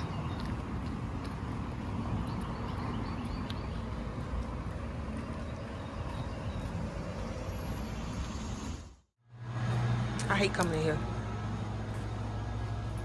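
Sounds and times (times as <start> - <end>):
footsteps on concrete: 0.0 - 7.6, 11.4 - 13.0.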